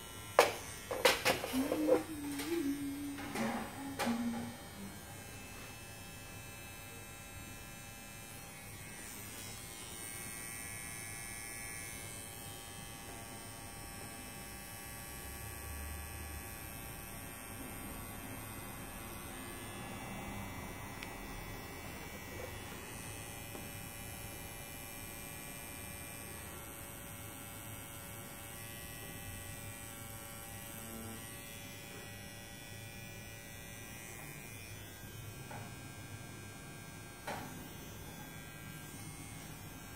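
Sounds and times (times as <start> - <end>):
tattoo pen buzzing: 0.0 - 13.8, 27.3 - 39.9.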